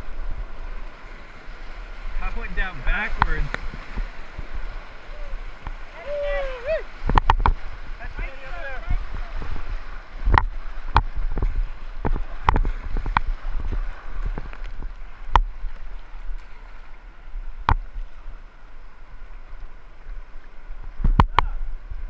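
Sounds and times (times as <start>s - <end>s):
whitewater rushing and splashing: 0.0s - 22.0s.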